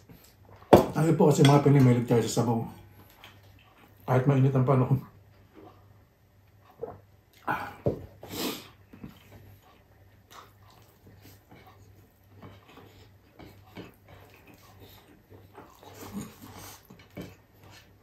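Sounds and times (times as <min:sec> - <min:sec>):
wet chewing and lip smacks: 0:08.8 - 0:18.0.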